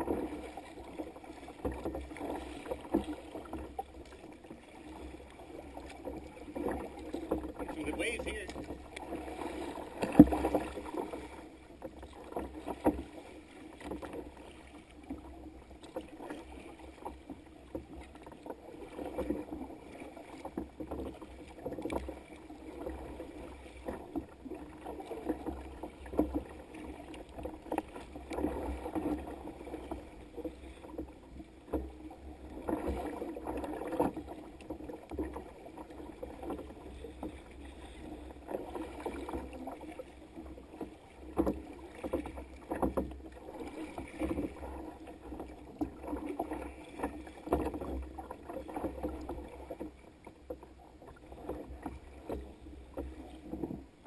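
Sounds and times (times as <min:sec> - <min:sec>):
waves slapping against kayak hull: 0:00.0 - 0:54.0.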